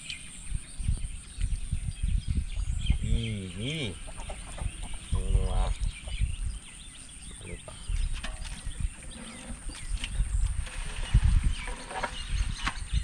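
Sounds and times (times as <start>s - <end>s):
small birds chirping: 0.0s - 13.0s
chicken clucking: 3.9s - 6.3s.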